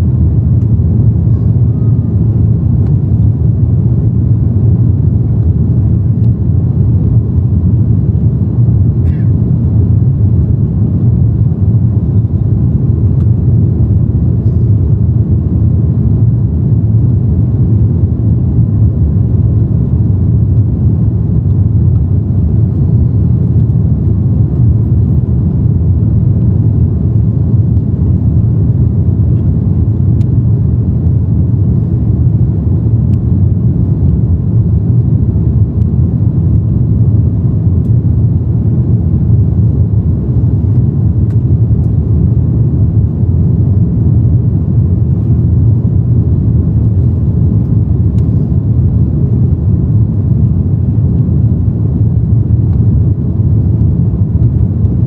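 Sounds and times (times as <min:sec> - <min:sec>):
airflow in cabin: 0:00.0 - 0:55.0
airplane engines low rumble: 0:00.0 - 0:55.0.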